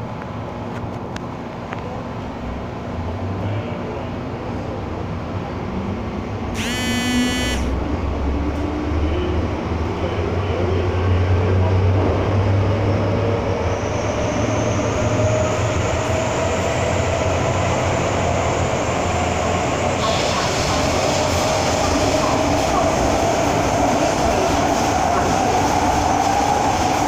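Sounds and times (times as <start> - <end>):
brief high-pitched sound: 6.6 - 7.8.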